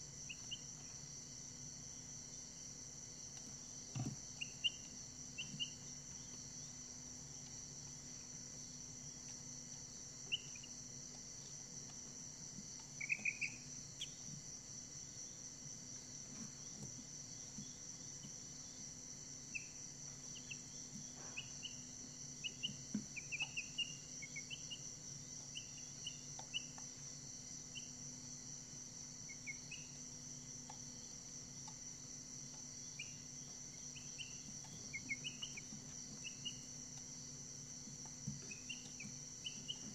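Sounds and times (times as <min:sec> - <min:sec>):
faint low hum: 0:00.0 - 0:39.9
chicks peeping: 0:04.3 - 0:06.3, 0:10.2 - 0:10.7, 0:12.8 - 0:14.2, 0:19.5 - 0:26.9, 0:32.9 - 0:37.1, 0:38.0 - 0:39.9.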